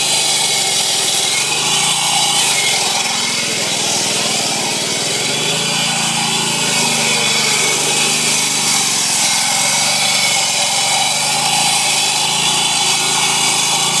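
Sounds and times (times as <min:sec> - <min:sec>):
engine hum: 0:00.0 - 0:14.0
saw blade grinding asphalt: 0:00.0 - 0:14.0.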